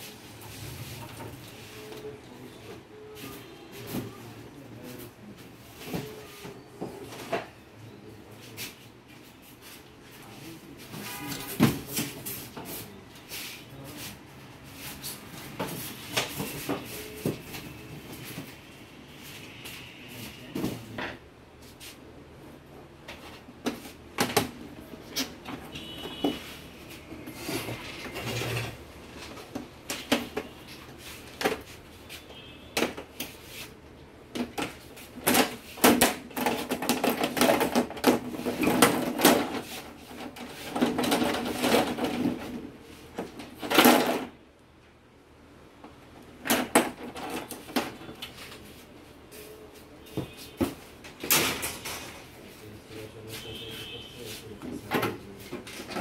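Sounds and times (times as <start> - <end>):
plastic and metal parts clattering: 34.3 - 44.4, 46.3 - 48.6, 50.6 - 52.3, 54.7 - 56.0.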